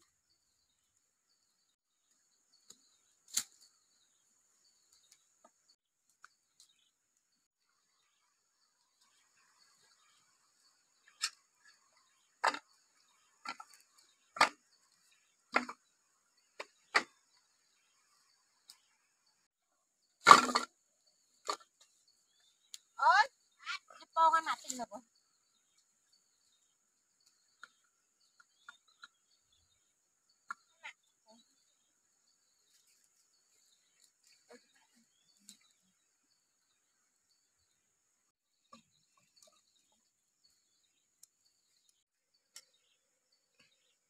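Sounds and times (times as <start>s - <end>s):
bamboo tubes knocking together: 12.4s - 12.8s, 13.4s - 14.7s, 15.5s - 15.8s, 16.6s - 17.2s, 20.2s - 20.7s.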